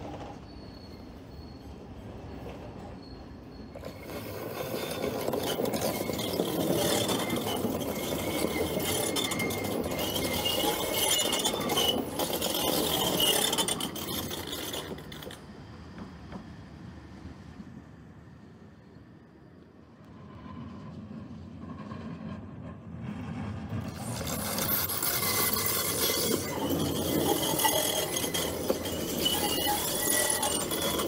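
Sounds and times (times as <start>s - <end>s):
high wheel squeal: 0.0s - 16.1s, 23.9s - 31.0s
tram wheels rattling on rails: 0.0s - 31.0s.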